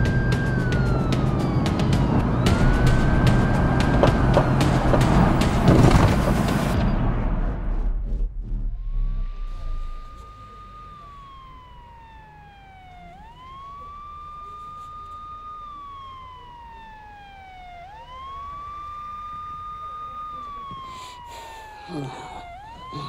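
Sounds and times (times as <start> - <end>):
police siren wailing: 0.0 - 6.8, 9.4 - 23.0.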